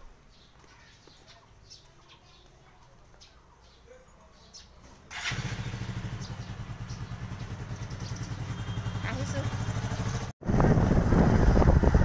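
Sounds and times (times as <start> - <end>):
motorcycle engine running: 5.1 - 12.0.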